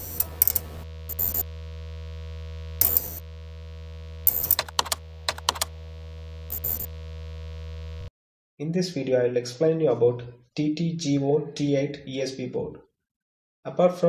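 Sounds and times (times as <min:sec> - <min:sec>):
synthesizer drone: 0:00.0 - 0:08.1
sharp clicking and crackling: 0:04.3 - 0:05.8.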